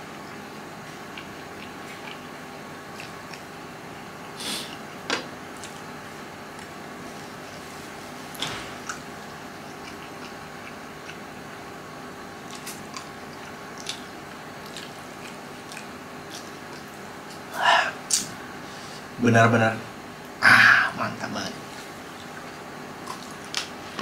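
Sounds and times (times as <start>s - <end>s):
person chewing noodles: 0.0s - 7.8s, 8.8s - 18.3s, 21.8s - 23.7s
faint hum: 0.0s - 24.0s.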